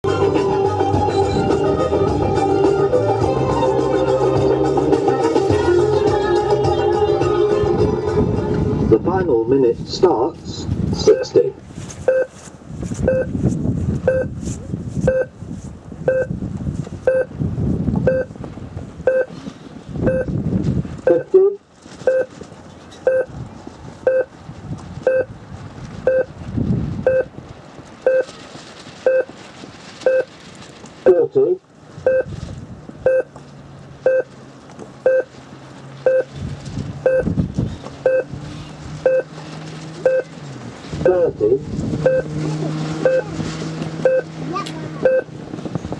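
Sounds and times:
wind rumble on microphone: 0.0s - 45.9s
electronic timer beeps: 12.1s - 12.3s, 13.1s - 13.3s, 14.1s - 14.3s, 15.1s - 15.3s, 16.1s - 16.3s, 17.1s - 17.3s, 18.1s - 18.3s, 19.1s - 19.3s, 20.1s - 20.3s, 22.1s - 22.3s, 23.1s - 23.3s, 24.1s - 24.3s, 25.1s - 25.3s, 26.1s - 26.3s, 27.1s - 27.3s, 28.1s - 28.3s, 29.1s - 29.3s, 30.1s - 30.3s, 32.1s - 32.3s, 33.1s - 33.3s, 34.1s - 34.3s, 35.0s - 35.3s, 36.1s - 36.3s, 37.1s - 37.3s, 38.0s - 38.3s, 39.0s - 39.3s, 40.0s - 40.3s, 42.0s - 42.3s, 43.0s - 43.2s, 44.0s - 44.3s, 45.0s - 45.3s.

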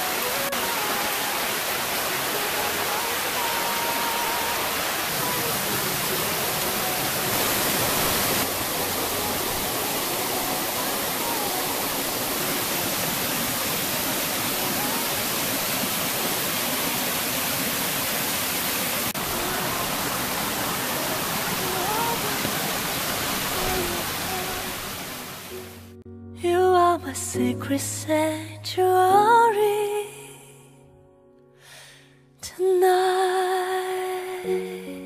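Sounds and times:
stream rushing over rocks: 0.0s - 25.8s.

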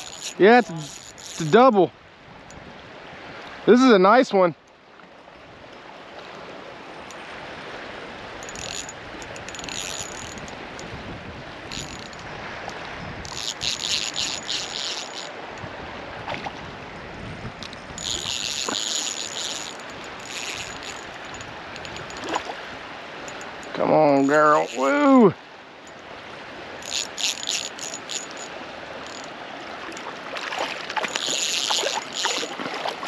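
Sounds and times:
fishing reel whirring: 0.0s - 1.8s, 8.4s - 10.9s, 11.6s - 15.6s, 17.9s - 22.5s, 23.3s - 25.2s, 26.8s - 29.3s, 31.0s - 32.6s
stream water rushing: 0.0s - 33.0s.

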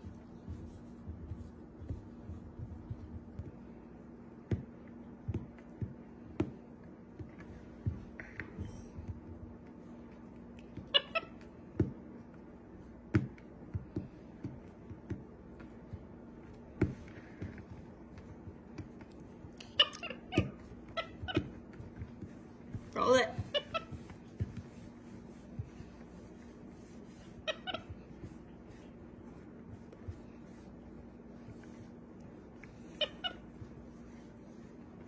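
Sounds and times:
low steady hum: 0.0s - 35.0s
monkey squeaky calls: 23.4s - 24.0s, 27.4s - 27.9s, 33.0s - 33.4s.

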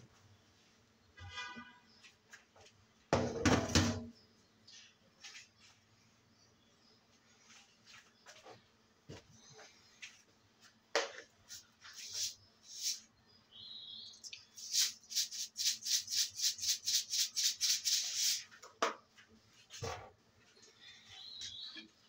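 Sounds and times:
dishes knocking and clinking: 3.2s - 4.1s
rapid scrubbing strokes: 14.6s - 18.5s.

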